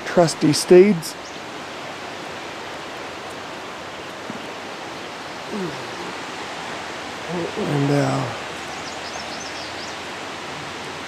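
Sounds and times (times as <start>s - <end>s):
rushing outdoor ambience: 0.0s - 11.0s
short voice-like sound: 5.5s - 6.2s.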